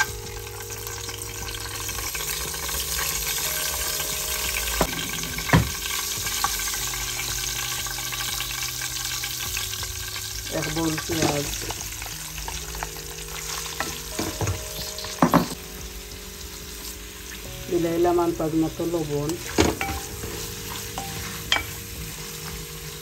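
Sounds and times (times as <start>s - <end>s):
spices sizzling in hot oil: 0.0s - 23.0s.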